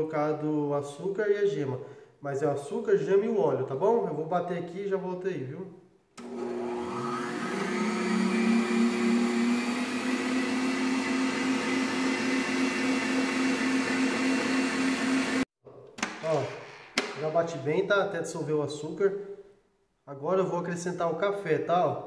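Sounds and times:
stand mixer motor hum: 6.2 - 15.5
whisk beating: 7.4 - 15.4.

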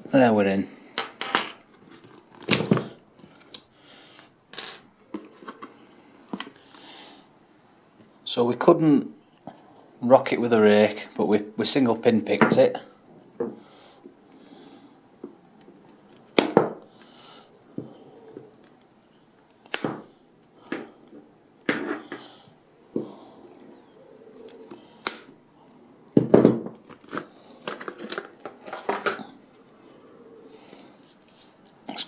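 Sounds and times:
cable handling noise: 1.0 - 3.7, 4.6 - 6.7, 15.2 - 17.2, 26.7 - 29.6.

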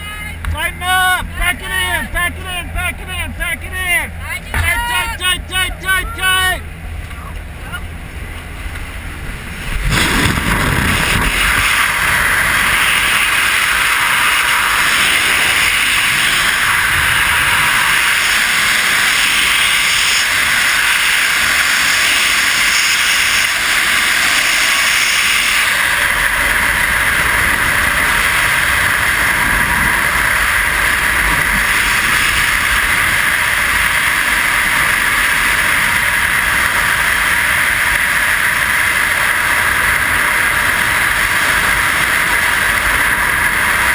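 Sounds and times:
freefall wind buffeting microphone: 0.0 - 43.9.

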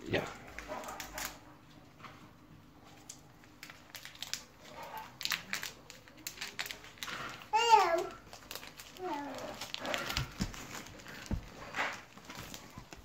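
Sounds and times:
foil pack crinkling: 0.5 - 1.4, 2.9 - 13.0
child's voice: 7.5 - 8.2, 9.0 - 9.6.

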